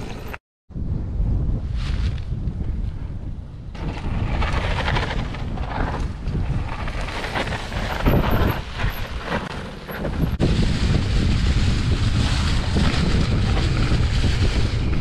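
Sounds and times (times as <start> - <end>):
wind rumble on microphone: 0.0 - 15.0
bike tyres crunching on leaves: 3.8 - 15.0.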